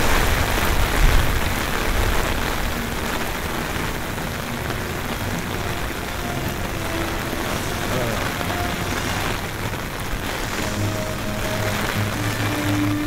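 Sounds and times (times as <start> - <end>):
wind rumbling on microphone: 0.0 - 8.3
heavy rain hissing: 0.0 - 13.0.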